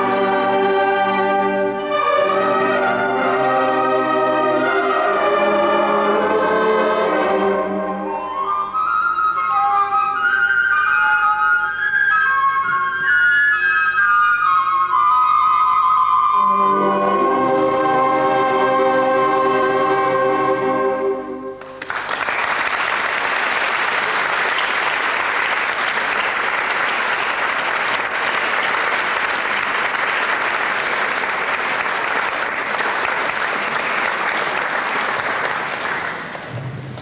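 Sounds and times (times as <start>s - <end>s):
orchestra with flutes holding chord: 0.0s - 21.8s
audience applauding: 21.6s - 37.0s.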